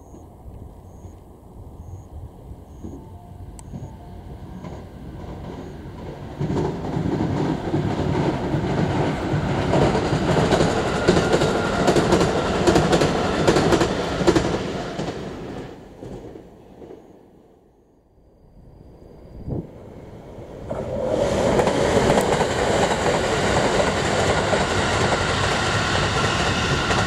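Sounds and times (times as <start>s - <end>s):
electric train passing: 0.0s - 27.0s
train wheels clacking on rail joints: 4.5s - 16.4s, 20.7s - 27.0s.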